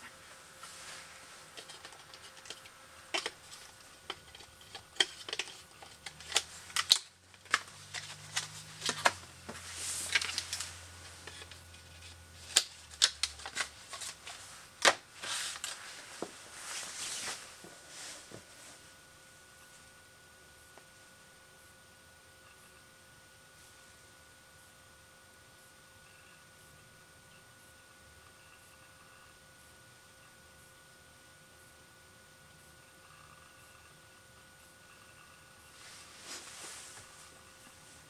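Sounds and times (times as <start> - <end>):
plastic packaging crinkling: 0.8 - 17.4.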